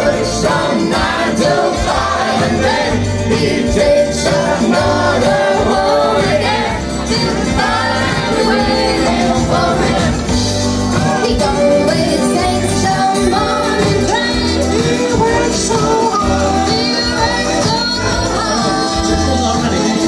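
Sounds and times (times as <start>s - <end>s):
acoustic guitar: 0.0s - 20.0s
woman singing into a microphone: 11.0s - 19.7s.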